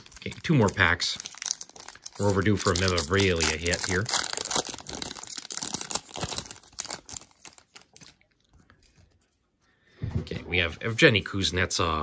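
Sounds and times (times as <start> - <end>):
foil wrapper crinkling and tearing: 0.0 - 9.1.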